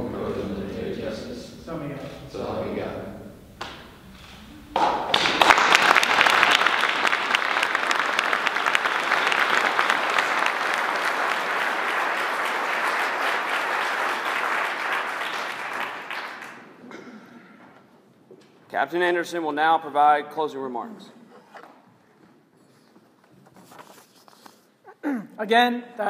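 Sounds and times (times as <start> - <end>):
audience applauding: 4.7 - 16.8.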